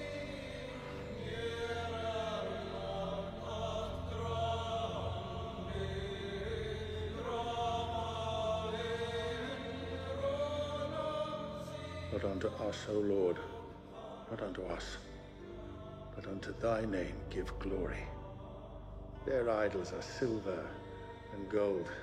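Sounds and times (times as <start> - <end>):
choir chanting held notes: 0.0 - 13.4
low sustained drone: 0.0 - 21.8.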